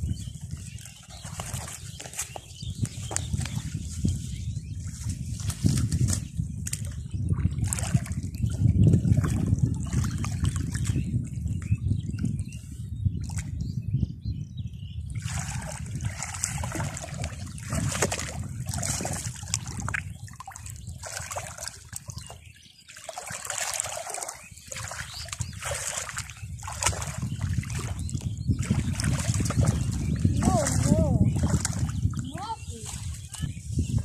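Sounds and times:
hands splashing in muddy water: 0.8s - 3.8s, 5.4s - 11.0s, 15.2s - 32.0s.

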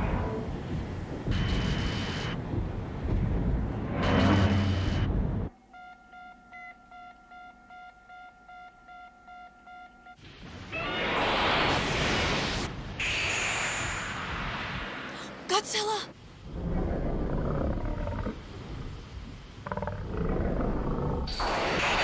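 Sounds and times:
electronic warning beeps: 5.7s - 10.2s.

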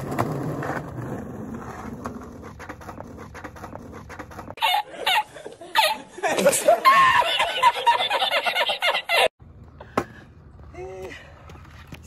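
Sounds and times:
skateboard wheels rolling on asphalt: 0.0s - 4.6s, 9.4s - 12.0s
high-pitched cackling laughs: 4.6s - 9.3s.

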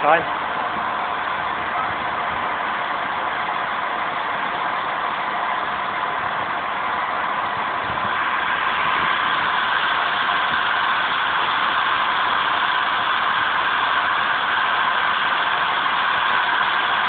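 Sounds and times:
steam hissing from locomotive: 0.0s - 17.0s.

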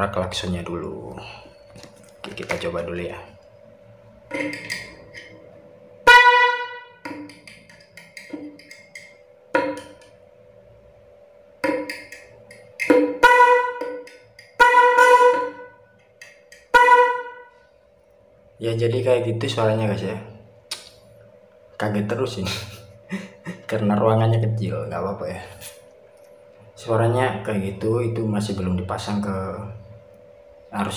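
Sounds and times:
fanfare horn honking: 6.0s - 7.0s, 12.9s - 15.8s, 16.7s - 17.6s.

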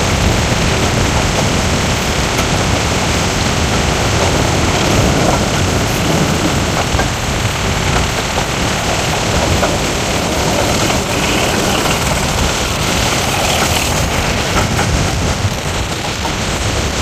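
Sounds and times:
train wheels running on track: 0.0s - 17.0s
wind across microphone: 0.0s - 17.0s.

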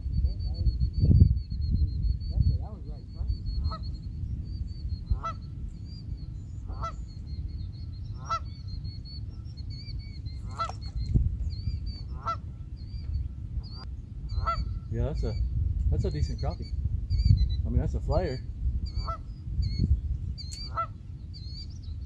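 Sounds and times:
bird honking: 2.6s - 4.0s, 5.0s - 5.6s, 6.6s - 7.2s, 7.8s - 11.1s, 12.0s - 12.7s, 13.6s - 14.9s, 18.9s - 19.3s, 20.6s - 21.1s.

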